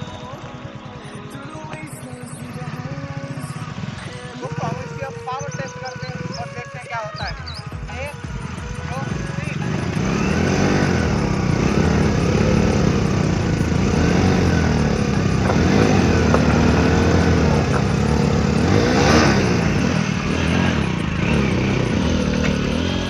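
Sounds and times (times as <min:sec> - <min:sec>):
motorcycle engines revving under load: 0:00.0 - 0:23.0.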